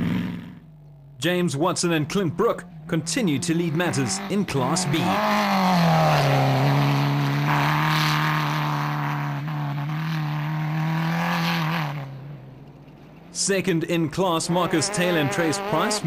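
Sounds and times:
buggy engine running hard: 0.0 - 16.0.

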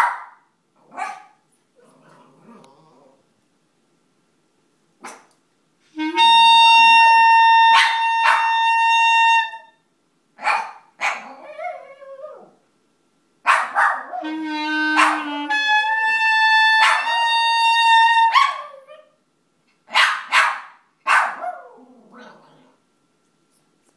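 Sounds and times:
dog barking: 0.0 - 1.4, 5.0 - 5.3, 7.8 - 8.5, 10.4 - 11.3, 13.4 - 14.2, 15.0 - 15.3, 16.8 - 17.1, 18.3 - 18.7, 19.9 - 21.8
clarinet long held notes: 5.8 - 9.8, 14.2 - 18.3.

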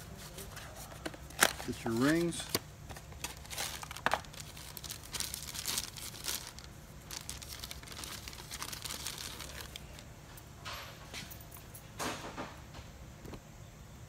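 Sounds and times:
plastic bag crinkling: 0.5 - 10.0.

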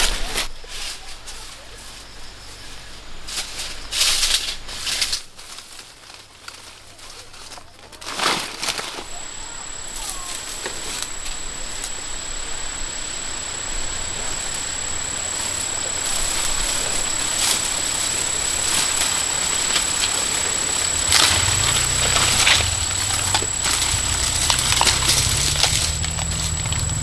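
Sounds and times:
leaves and twigs rustling: 0.0 - 27.0
high-pitched insect call: 6.8 - 27.0.

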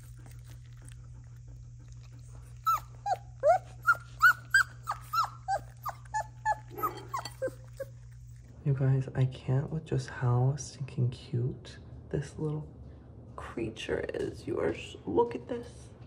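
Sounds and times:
dog whining: 0.0 - 8.5
puppies eating wet food: 0.0 - 9.6.

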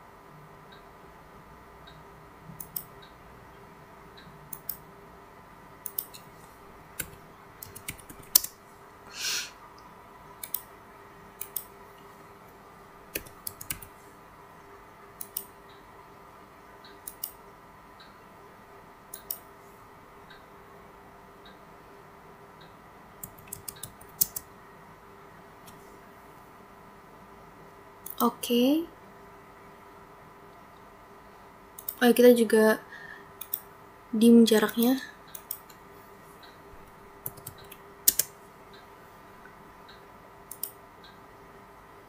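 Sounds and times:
faint electrical hum: 0.0 - 42.0
computer mouse clicks: 2.6 - 3.2, 4.2 - 4.8, 5.8 - 6.3, 7.0 - 8.6, 10.4 - 10.7, 11.4 - 12.1, 13.1 - 13.9, 15.2 - 15.8, 16.8 - 17.4, 19.1 - 19.5, 22.6 - 24.5, 31.8 - 32.0, 33.4 - 33.7, 34.6 - 35.8, 36.4 - 38.9, 39.9 - 41.2
keyboard key presses: 7.0 - 8.6, 10.4 - 10.7, 13.1 - 13.9, 37.2 - 38.3
short hiss: 9.1 - 9.6.

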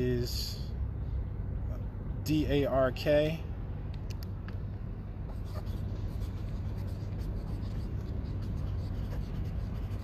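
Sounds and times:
steady low hum: 0.0 - 10.0
marker scratching on paper: 5.2 - 10.0.

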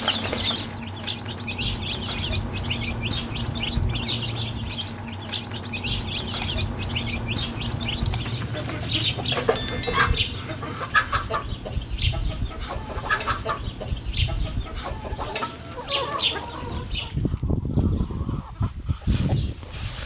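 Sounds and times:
chickens clucking: 10.7 - 19.6.

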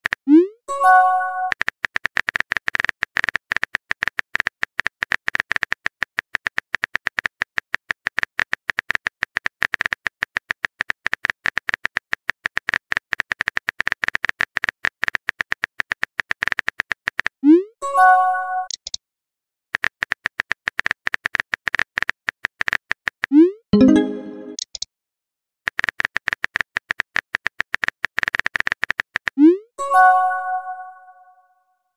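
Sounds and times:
message sent chime: 17.8 - 18.7, 23.8 - 24.6.

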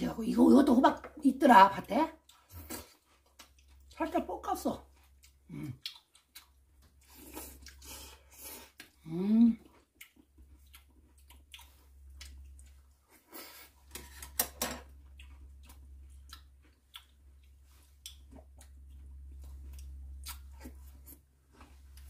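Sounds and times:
steady low hum: 0.0 - 22.0
quiet chewing: 2.1 - 4.1, 4.8 - 13.9, 14.8 - 22.0.

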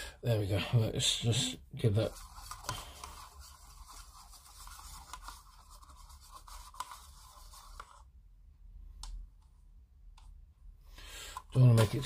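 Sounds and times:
paintbrush scraping plastic cup: 2.0 - 8.1.

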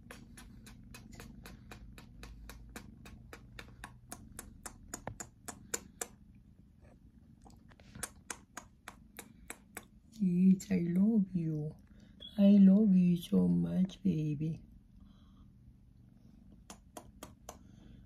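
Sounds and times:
kitten kissing and licking: 0.0 - 6.2, 7.4 - 10.3, 16.5 - 17.9.

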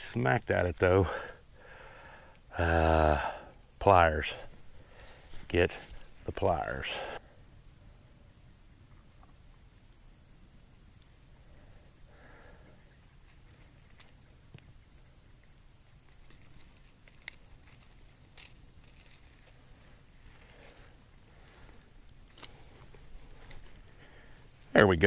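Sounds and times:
insect chorus: 0.0 - 25.0
rustling in grass: 13.0 - 24.7.

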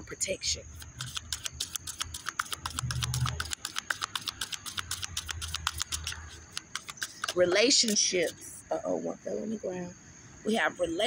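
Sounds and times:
cards being shuffled: 0.7 - 8.4.

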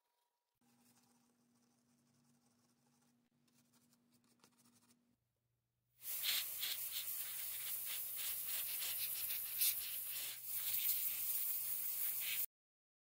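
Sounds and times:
scrubbing on a hard surface: 6.0 - 12.5.

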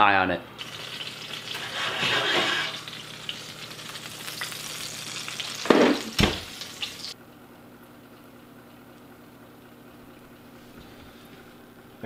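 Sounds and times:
steak sizzling on hot plate: 0.6 - 7.2
oven door thudding shut: 5.7 - 6.5.

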